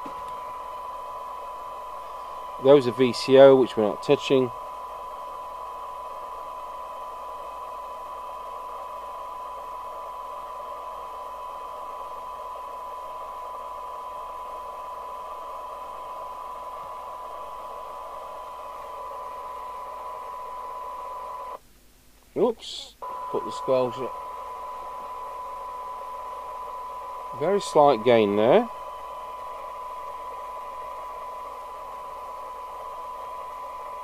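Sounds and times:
steady test tone: 0:00.0 - 0:10.5, 0:22.4 - 0:34.0
radio hiss: 0:00.0 - 0:21.6, 0:22.4 - 0:34.0.

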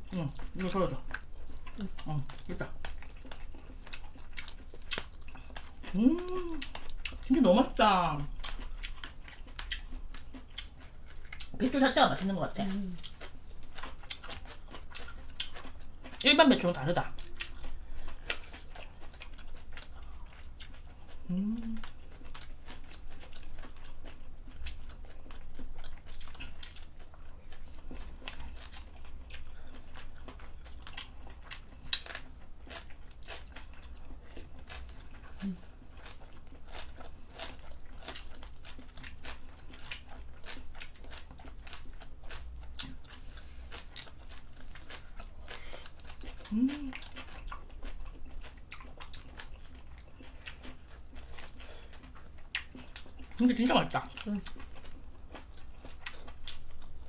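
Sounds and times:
chewing and crunching food: 0:00.0 - 0:57.0
person humming: 0:05.9 - 0:06.6, 0:21.3 - 0:21.8, 0:46.5 - 0:47.0.

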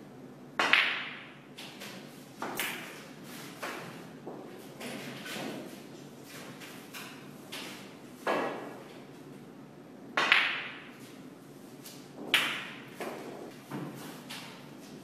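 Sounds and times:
snooker balls clicking: 0:00.6 - 0:03.0, 0:10.2 - 0:11.1.

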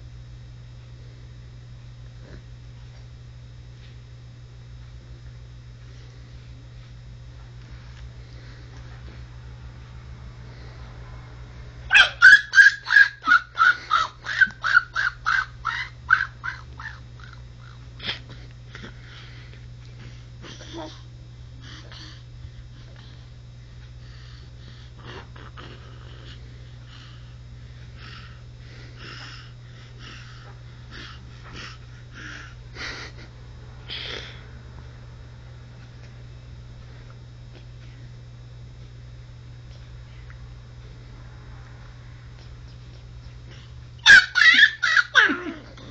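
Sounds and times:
low electrical hum: 0:00.0 - 0:45.9
breathy puffs and sniffs: 0:21.6 - 0:33.3.

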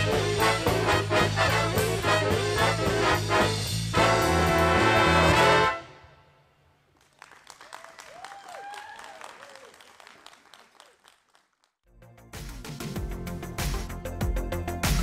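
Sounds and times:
music: 0:00.0 - 0:06.4, 0:11.9 - 0:15.0
congregation applauding: 0:06.9 - 0:11.7.

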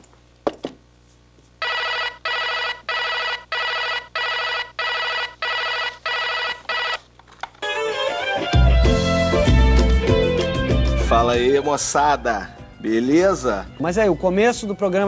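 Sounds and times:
telephone ringing: 0:01.6 - 0:08.2.

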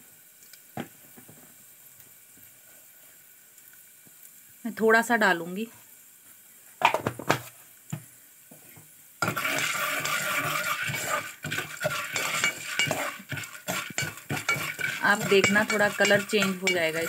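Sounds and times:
oil sizzling: 0:00.0 - 0:17.0
ladle scraping metal pot: 0:09.2 - 0:17.0.

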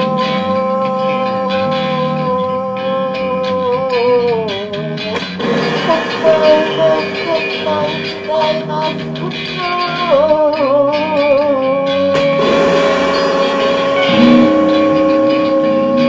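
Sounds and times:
droning electric guitars: 0:00.0 - 0:16.0
wavering gliding tone: 0:05.4 - 0:10.1, 0:12.4 - 0:16.0.

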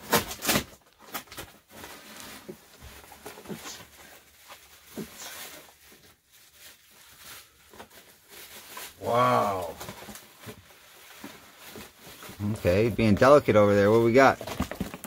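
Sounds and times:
hands crinkling bubble wrap: 0:00.1 - 0:15.0.

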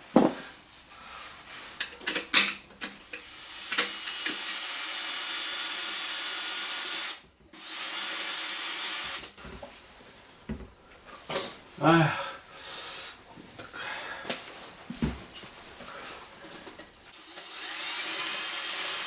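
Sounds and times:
power drill on iron: 0:03.0 - 0:09.3, 0:17.1 - 0:19.0.

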